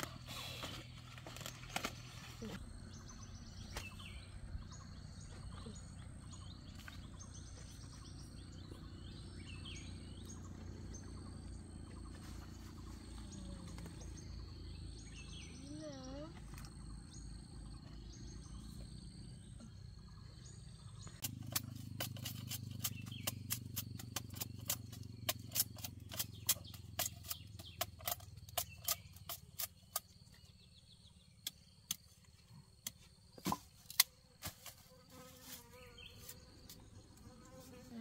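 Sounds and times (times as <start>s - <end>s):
sharp cracks and snaps: 33.8s - 34.7s.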